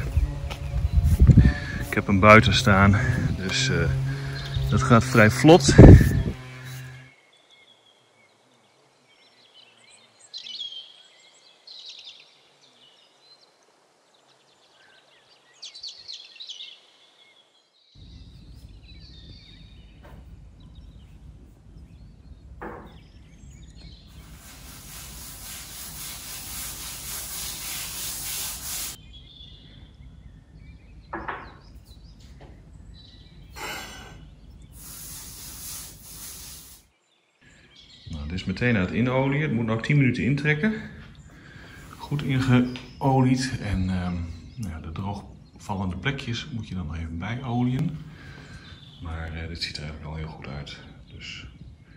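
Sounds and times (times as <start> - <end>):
sharp knocks: 22.6 - 23.0
pad scrubbing wooden tabletop: 24.1 - 29.0, 34.8 - 36.8.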